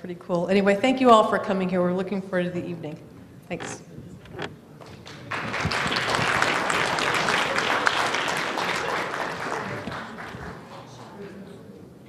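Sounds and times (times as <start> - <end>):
audience applauding: 4.8 - 11.6.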